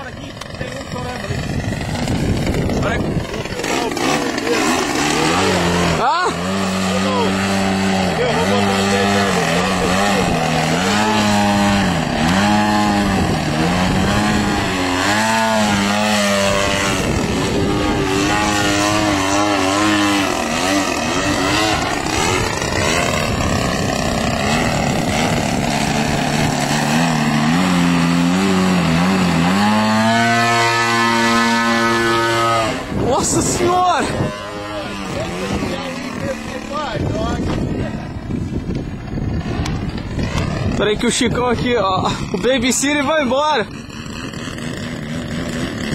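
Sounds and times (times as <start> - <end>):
model plane engine and propeller: 0.0 - 45.9.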